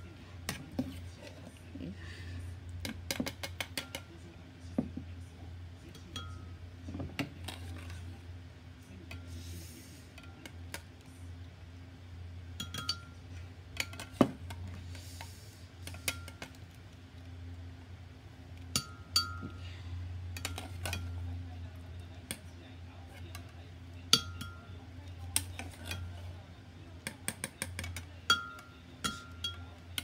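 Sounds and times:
steady low hum: 0.0 - 30.0
metal ladle clinking on pans: 12.6 - 13.2, 20.3 - 21.2, 24.1 - 24.7.

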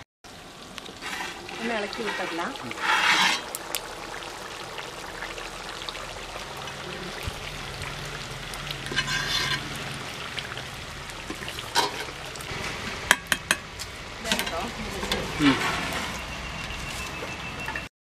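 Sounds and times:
gravy boiling in a pot: 0.3 - 17.8
tongs stirring in a pot: 1.0 - 3.6, 8.8 - 9.7.

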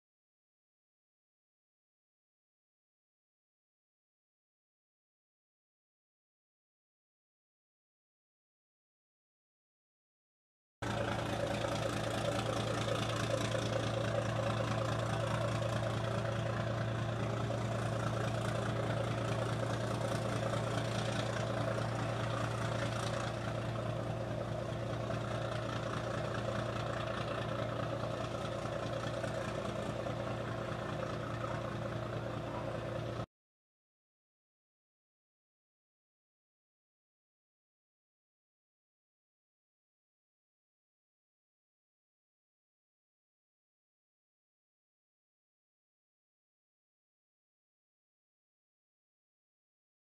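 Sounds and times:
boat engine chugging: 10.8 - 33.2.

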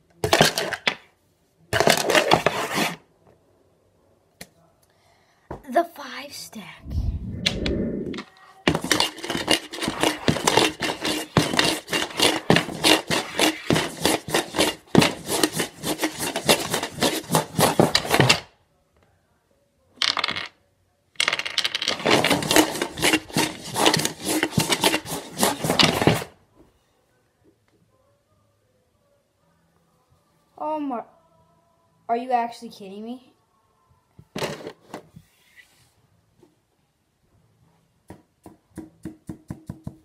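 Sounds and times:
dice rattling in plastic cup: 8.7 - 18.2, 20.0 - 20.5, 21.2 - 26.2.

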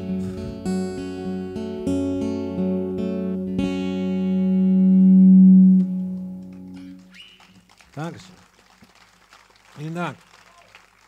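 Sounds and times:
acoustic guitar strumming chords: 0.0 - 7.1.

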